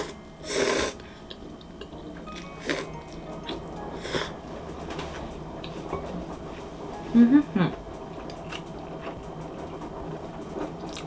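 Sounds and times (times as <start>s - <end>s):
faint background music: 0.0s - 11.0s
chewing noodles: 10.6s - 11.0s.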